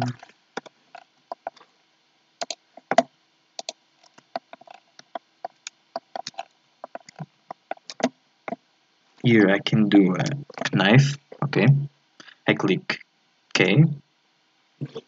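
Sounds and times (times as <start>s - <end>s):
keyboard and mouse clicking: 2.4s - 8.1s.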